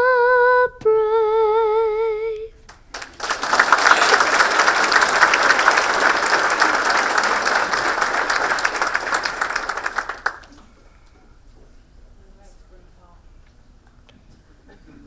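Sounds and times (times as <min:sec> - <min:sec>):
audience applauding: 0:02.7 - 0:10.8.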